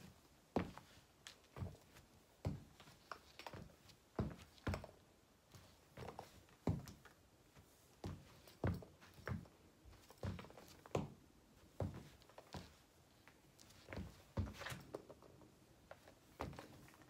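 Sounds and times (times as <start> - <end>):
footsteps on hardwood floor: 0.6 - 4.9, 8.0 - 12.8, 13.6 - 14.9, 15.9 - 16.9.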